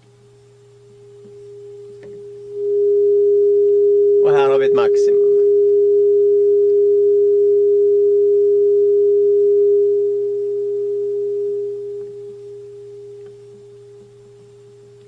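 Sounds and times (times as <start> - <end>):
loudspeaker sine tone: 0.6 - 14.9.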